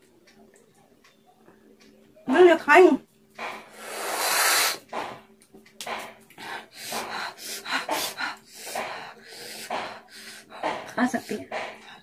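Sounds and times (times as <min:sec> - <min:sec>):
woman breathing hard: 0:06.3 - 0:12.0.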